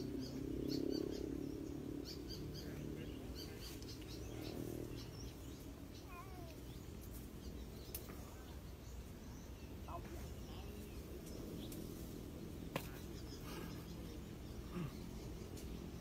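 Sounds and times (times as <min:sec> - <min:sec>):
faint bird chirps: 0:00.0 - 0:11.9.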